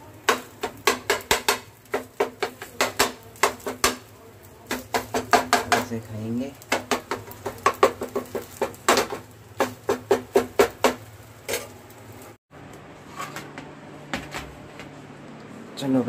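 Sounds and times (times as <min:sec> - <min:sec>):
utensil tapping on cookware: 0:00.2 - 0:04.1, 0:04.7 - 0:05.9, 0:06.6 - 0:11.1.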